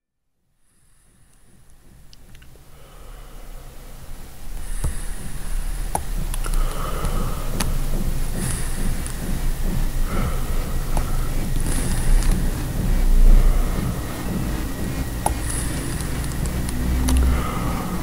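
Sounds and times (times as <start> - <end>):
low rumbling noise: 0.6 - 18.0
sharp clicks: 4.6 - 18.0.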